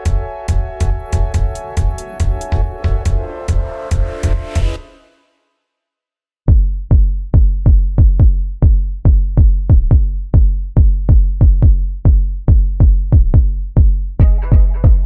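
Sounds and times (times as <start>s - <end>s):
electronic music with heavy bass: 0.0s - 5.1s, 14.2s - 15.0s.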